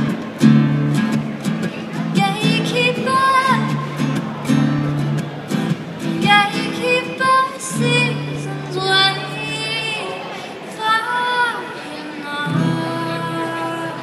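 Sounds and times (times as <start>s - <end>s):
acoustic guitar strumming chords: 0.0s - 10.5s, 12.4s - 14.0s
woman singing: 2.1s - 4.0s, 6.2s - 14.0s.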